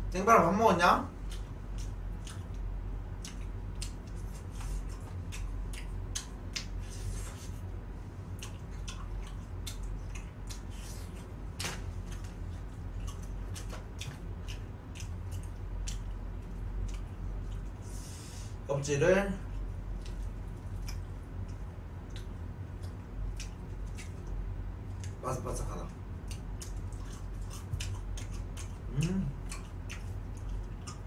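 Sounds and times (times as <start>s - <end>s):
low steady hum: 0.0s - 31.0s
crunching fried chicken: 19.4s - 31.0s.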